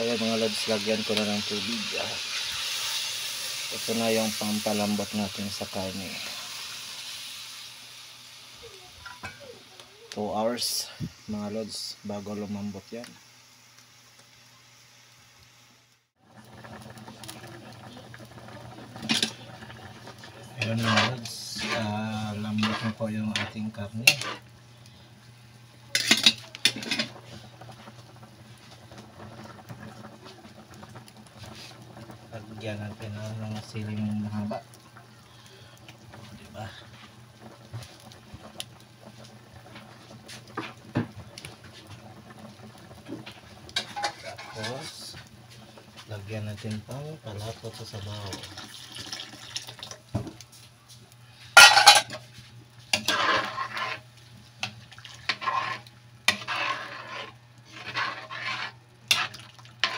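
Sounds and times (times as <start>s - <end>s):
wood fire crackles and pops: 0.0s - 14.4s, 15.4s - 59.9s
faint steady hiss: 0.0s - 16.1s
broth boiling in a pot: 0.0s - 59.9s.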